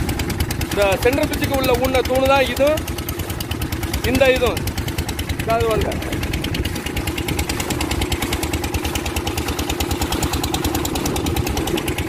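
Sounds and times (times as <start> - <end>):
boat motor pulsing: 0.0 - 12.0.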